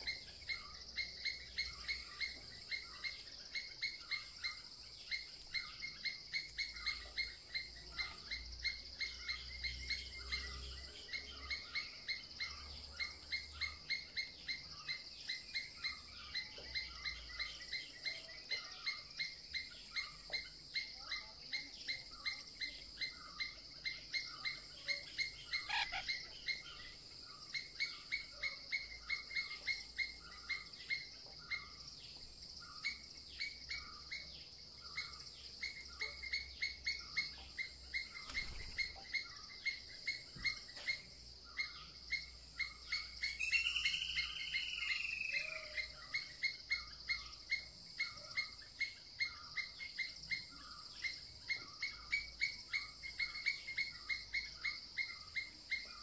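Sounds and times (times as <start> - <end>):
long arching call: 25.5 - 26.3, 43.0 - 46.9
high insect drone: 34.8 - 56.0.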